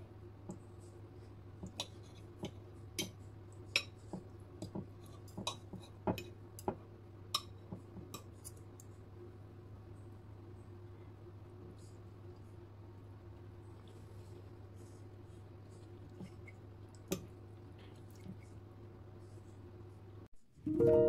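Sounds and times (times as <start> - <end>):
cutlery clicking on plate: 7.4 - 8.6.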